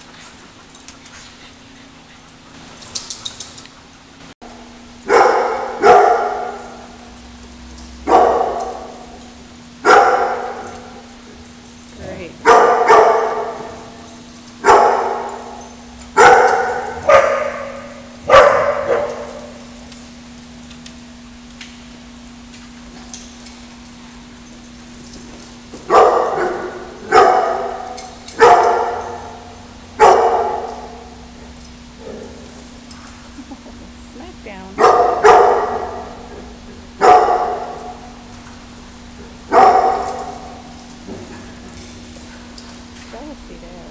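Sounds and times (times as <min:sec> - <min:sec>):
faint steady hum: 0:00.0 - 0:43.9
dog barking with echo: 0:05.1 - 0:06.6, 0:08.1 - 0:08.9, 0:09.8 - 0:10.6, 0:12.4 - 0:13.7, 0:14.6 - 0:15.5, 0:16.2 - 0:19.5, 0:25.9 - 0:29.2, 0:30.0 - 0:31.0, 0:34.8 - 0:36.1, 0:37.0 - 0:37.8, 0:39.5 - 0:40.4.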